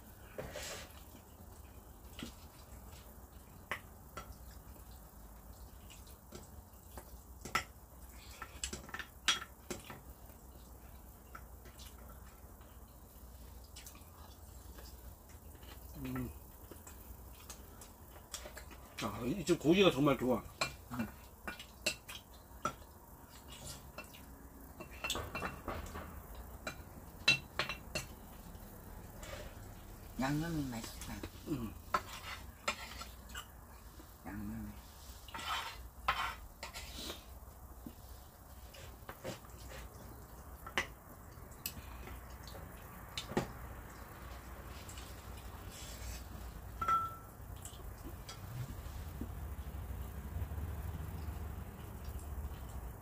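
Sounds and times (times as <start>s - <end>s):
chopsticks and spoon tapping bowls: 8.4s - 10.1s, 24.8s - 28.3s, 46.7s - 48.6s
ringing clink of tableware: 46.8s - 47.3s
chopsticks clinking on bowls: 46.8s - 48.6s.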